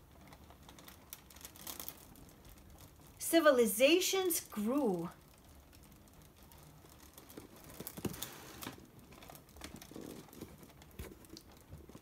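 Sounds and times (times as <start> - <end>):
paper scroll rustling: 0.0 - 3.7, 4.6 - 12.0.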